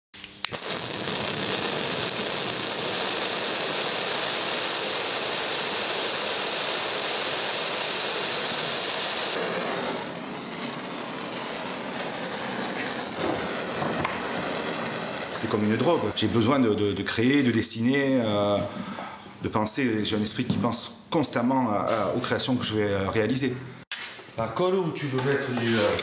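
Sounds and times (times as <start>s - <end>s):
blowtorch flame hissing: 0.4s - 17.3s.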